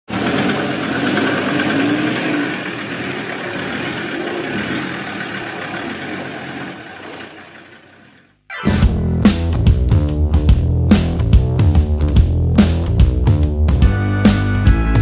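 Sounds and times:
motor running: 0.1s - 8.3s.

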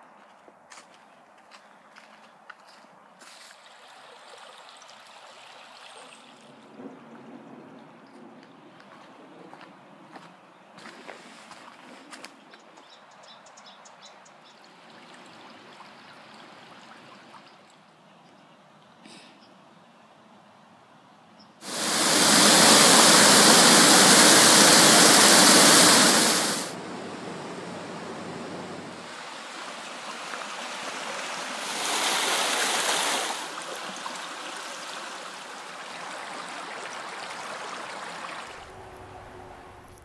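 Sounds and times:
creek water rushing: 21.6s - 39.8s.

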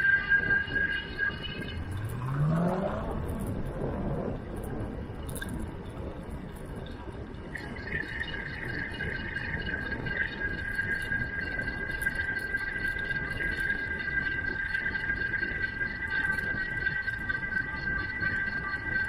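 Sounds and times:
bicycle road and wind noise: 0.0s - 19.0s
steady high whine: 0.0s - 19.0s
vehicle engine speeding up: 1.7s - 4.8s.

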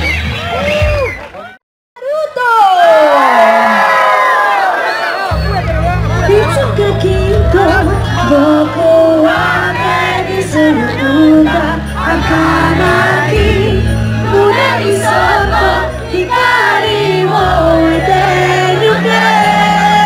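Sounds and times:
held bass notes: 5.3s - 20.0s
person singing: 6.1s - 20.0s.

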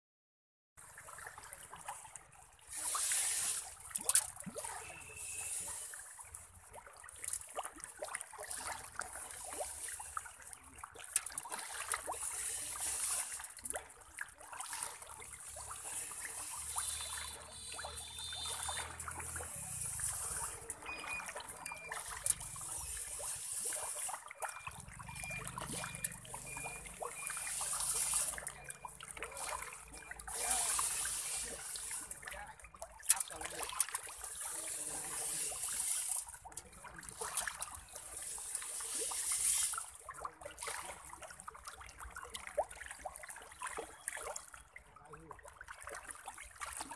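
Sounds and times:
fish splashing at water surface: 0.8s - 46.9s.

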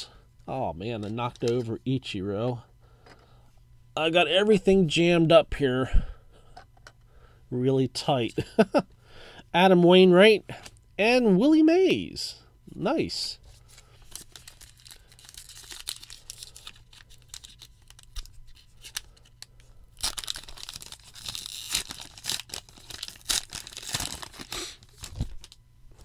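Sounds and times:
wrapper tearing and crinkling: 13.8s - 25.6s.

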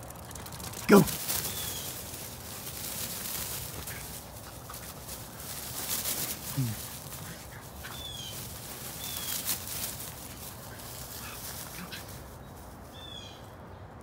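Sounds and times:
bird chirping: 1.4s - 6.2s, 7.4s - 11.4s, 12.3s - 14.0s.

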